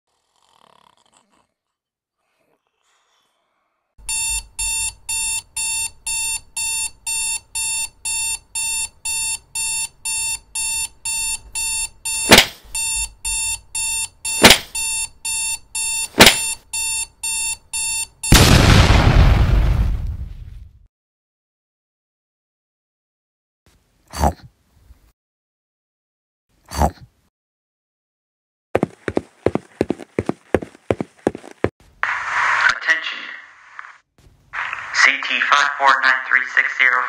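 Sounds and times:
electronic alarm beeping: 4.0 - 18.4.

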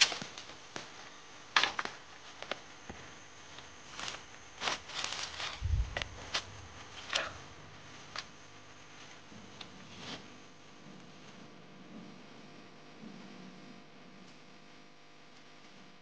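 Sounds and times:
clicks and rustles of handling: 0.0 - 12.2.

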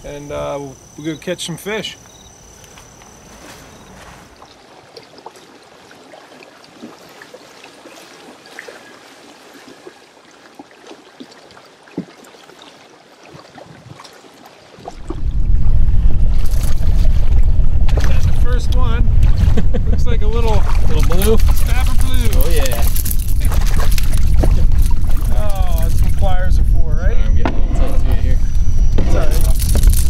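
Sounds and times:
water trickling and lapping: 2.0 - 26.5
wind buffeting microphone: 14.8 - 30.0.

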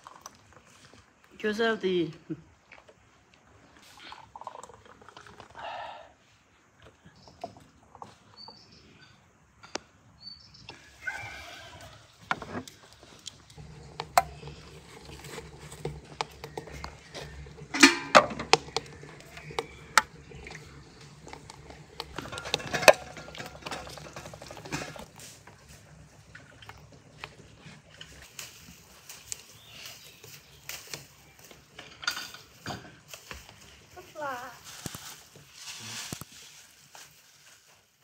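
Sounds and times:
glass jars clinking: 16.4 - 20.7, 21.9 - 25.0.

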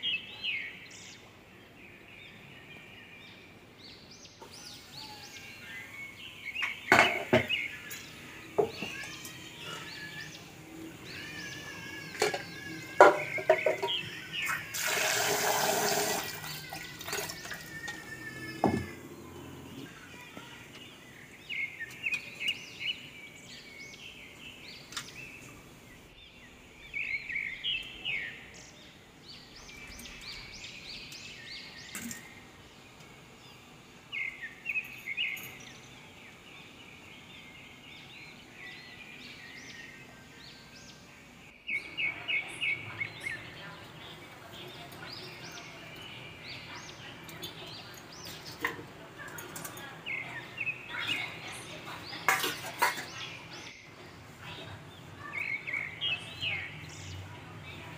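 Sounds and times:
birds chirping: 0.0 - 57.9
steel vessels knocking and clinking: 6.6 - 9.4, 12.1 - 14.1, 52.2 - 53.2
running water: 13.0 - 19.7.

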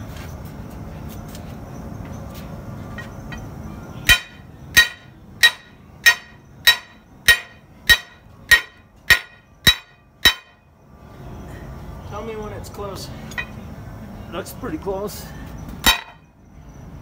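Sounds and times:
hammer striking steel bar: 4.0 - 10.6, 15.8 - 16.3.

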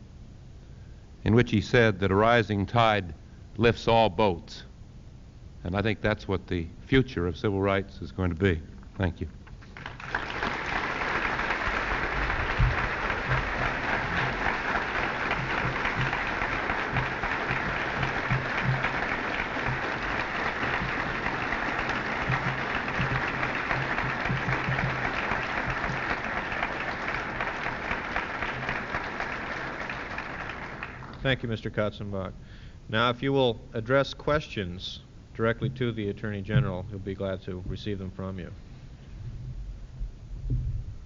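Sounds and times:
audience applauding: 9.5 - 31.2.

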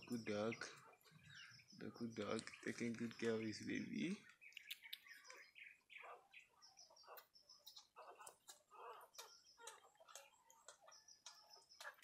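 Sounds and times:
puppies squeaking: 0.0 - 3.2, 4.3 - 12.0
wet clicks of puppies nursing: 4.2 - 5.7, 6.3 - 12.0.

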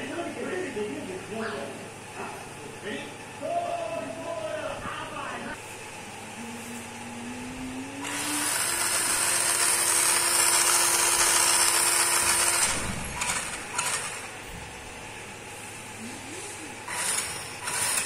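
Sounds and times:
small motors whirring: 6.2 - 14.6, 15.9 - 18.0.

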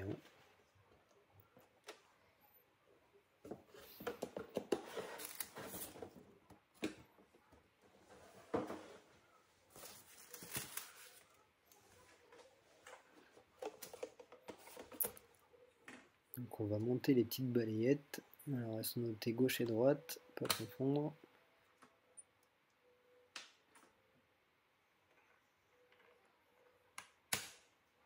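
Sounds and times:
cardboard packaging rustling: 9.7 - 11.4.

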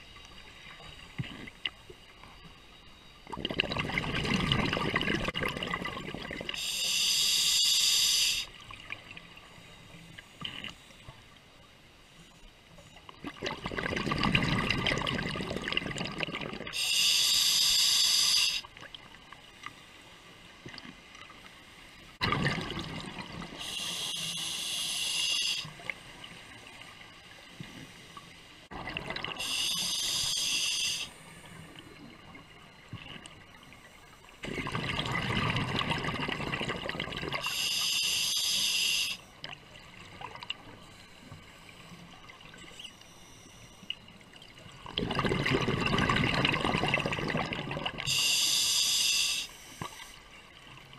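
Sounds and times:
bubbling gurgling exhales: 3.3 - 6.6, 13.2 - 16.8, 22.2 - 23.8, 34.4 - 37.6, 44.8 - 48.2
hissing inhales through regulator: 6.6 - 8.6, 16.7 - 18.7, 23.6 - 25.7, 29.4 - 31.6, 37.4 - 39.2, 48.0 - 50.2.

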